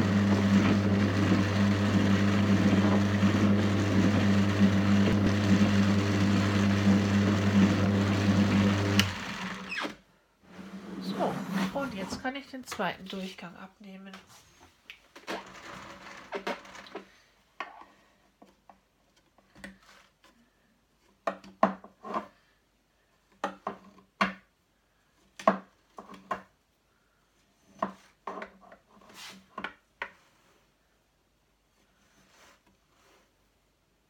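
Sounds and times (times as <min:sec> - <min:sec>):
rasping scrape: 0:10.5 - 0:12.3.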